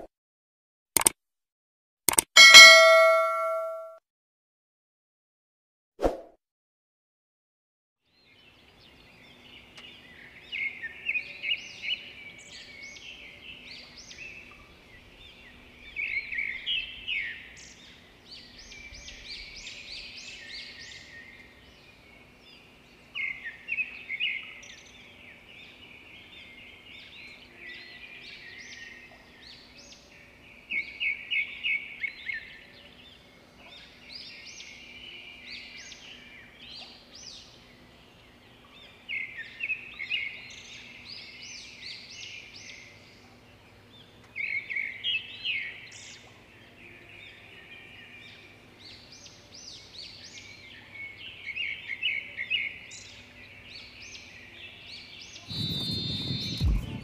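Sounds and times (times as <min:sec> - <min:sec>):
birds chirping and singing: 0:08.2 - 0:57.0.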